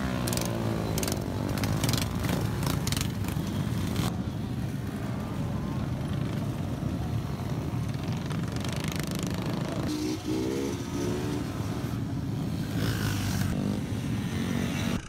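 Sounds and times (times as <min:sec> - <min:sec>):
mini-bike engines running: 0:00.0 - 0:10.2.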